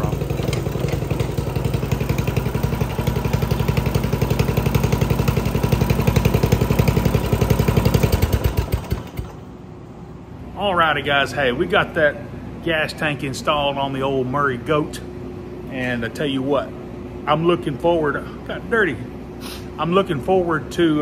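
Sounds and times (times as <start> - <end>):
lawn tractor engine running: 0.0 - 9.5.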